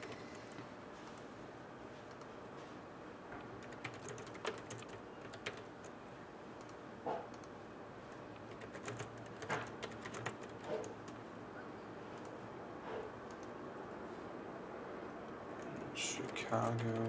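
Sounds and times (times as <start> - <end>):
computer keyboard key clicks: 3.6 - 5.7, 8.4 - 11.2.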